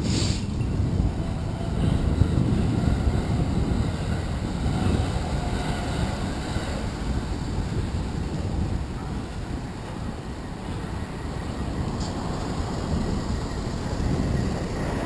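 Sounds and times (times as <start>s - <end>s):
short hiss: 0.0s - 0.6s
road traffic passing: 0.0s - 15.0s
wind buffeting microphone: 0.0s - 15.0s.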